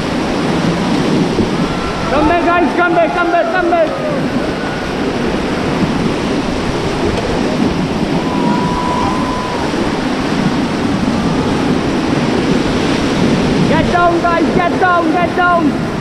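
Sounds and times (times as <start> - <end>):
rushing whitewater: 0.0 - 16.0.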